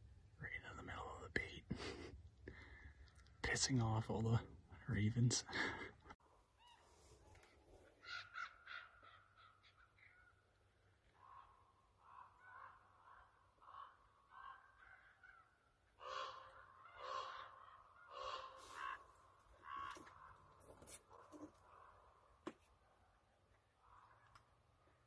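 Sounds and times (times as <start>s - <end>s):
ravens croaking caws: 7.9s - 22.6s, 23.6s - 25.0s.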